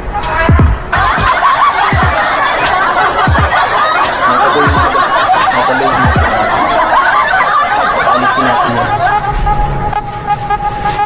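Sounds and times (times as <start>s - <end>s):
background music: 0.0s - 11.0s
people laughing and chuckling: 0.9s - 9.9s.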